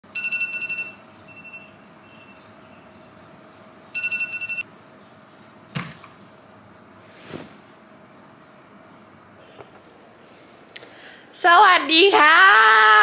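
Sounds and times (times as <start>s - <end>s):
electronic alarm trilling beeps: 0.1s - 2.9s, 4.0s - 4.7s
bedding rustling: 7.0s - 7.8s.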